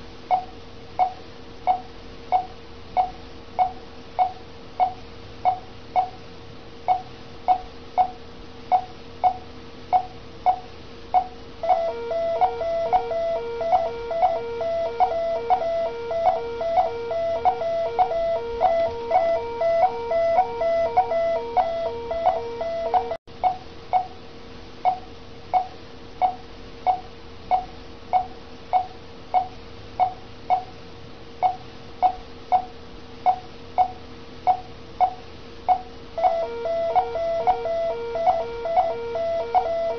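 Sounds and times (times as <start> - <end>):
faint steady tone: 0.0 - 30.8, 31.4 - 39.9
multi-tone alarm beeping: 11.6 - 23.2, 35.0 - 39.9
patient monitor short beeps: 11.6 - 23.2, 34.5 - 39.9.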